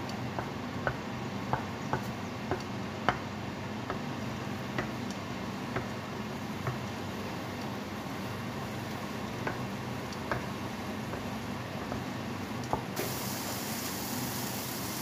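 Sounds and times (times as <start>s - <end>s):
steady low hum: 0.0s - 13.0s
spatula tapping frying pan: 0.3s - 4.1s, 6.6s - 6.9s, 9.0s - 12.9s.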